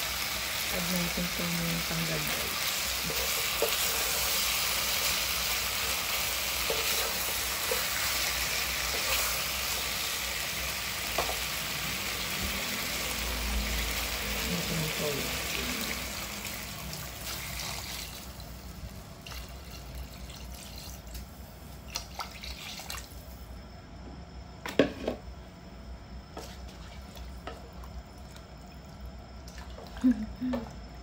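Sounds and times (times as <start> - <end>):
broth simmering and bubbling: 11.6 - 21.2, 26.4 - 31.0.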